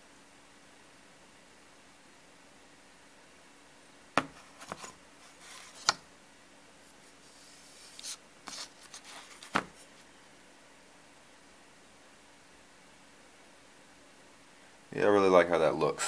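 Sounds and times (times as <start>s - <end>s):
paper rubbing and scraping: 4.3s - 6.0s, 6.9s - 10.1s.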